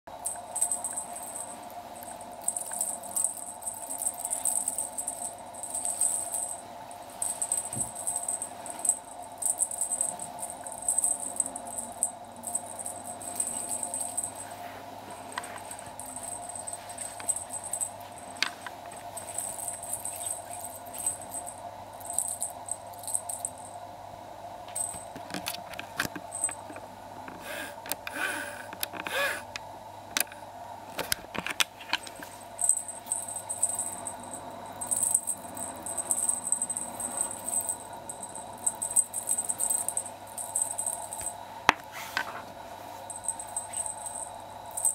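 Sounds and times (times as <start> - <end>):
feather toy jingling and rustling: 0.1 - 23.8, 24.8 - 25.2, 32.0 - 41.4, 42.9 - 44.9
steady hum: 0.1 - 44.9.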